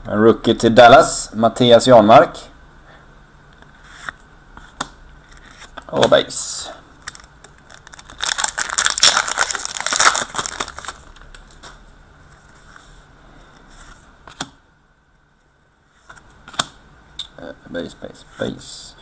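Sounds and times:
foil wrapper crinkling and tearing: 0:07.0 - 0:11.6.

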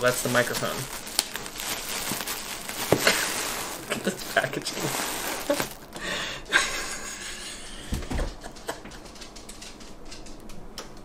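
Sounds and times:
plastic wrap scraping cardboard: 0:00.0 - 0:06.0.

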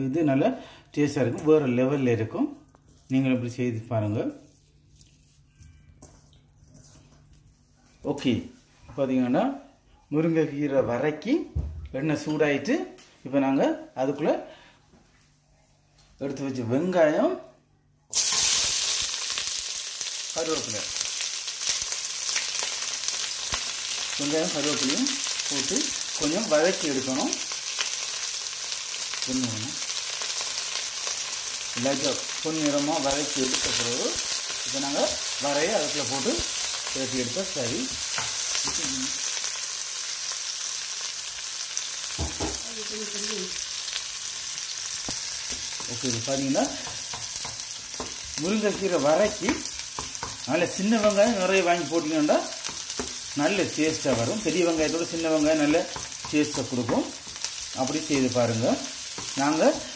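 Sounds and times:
food frying in oil: 0:18.1 - 0:59.9.

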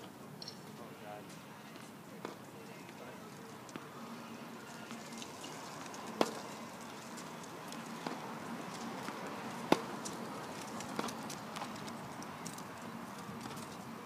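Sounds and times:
tennis ball pops: 0:06.2 - 0:06.5, 0:09.7 - 0:10.1.

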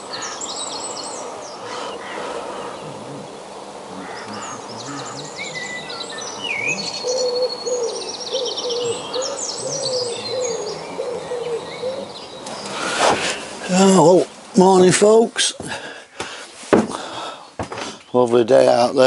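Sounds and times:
songbirds trilling and chirping: 0:00.0 - 0:19.0
low wavering bird call: 0:00.1 - 0:13.2.

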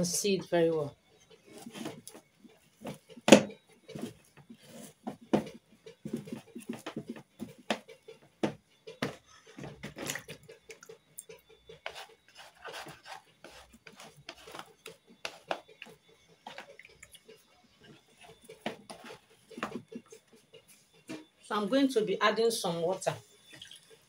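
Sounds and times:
utensil scraping pot: 0:11.8 - 0:20.2.

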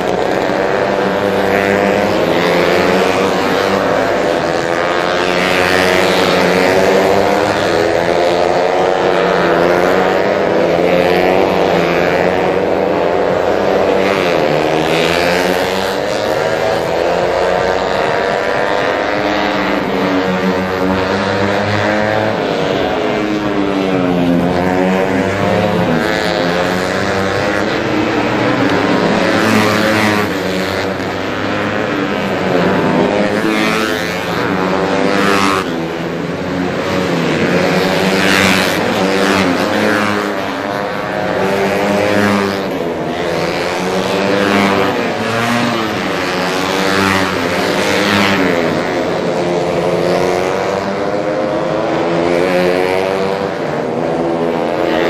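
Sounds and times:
racing motorcycles revving past: 0:00.0 - 0:55.0.

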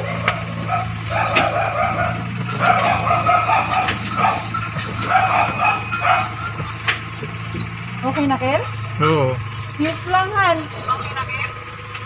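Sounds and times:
dog yapping and whining: 0:00.0 - 0:06.5
car engine idling: 0:00.0 - 0:12.0.

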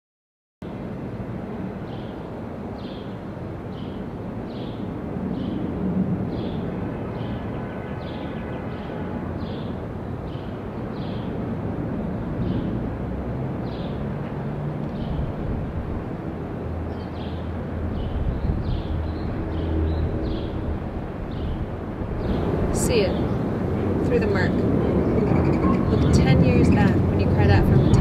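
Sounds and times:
low rumble of traffic: 0:00.6 - 0:28.0
low engine drone: 0:11.4 - 0:28.0.

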